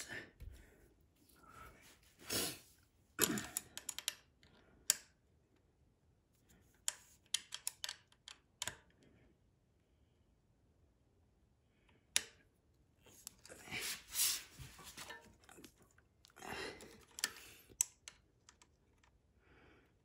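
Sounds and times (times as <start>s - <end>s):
small metallic clicks and rattles: 3.3s - 5.1s, 6.8s - 9.0s.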